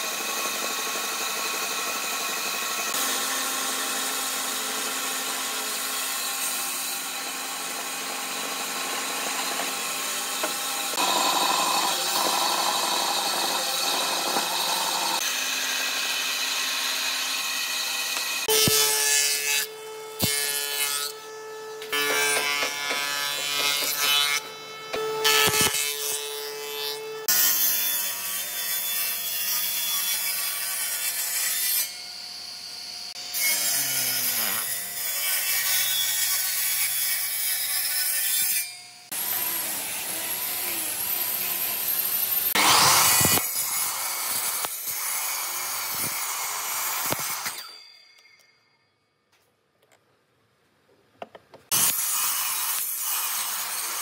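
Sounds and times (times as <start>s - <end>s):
jointer planing wood: 0.0s - 27.4s, 39.1s - 47.6s
miter saw crosscutting wood: 0.0s - 27.8s, 33.1s - 48.5s
table saw ripping wood: 2.4s - 31.9s, 33.1s - 47.9s.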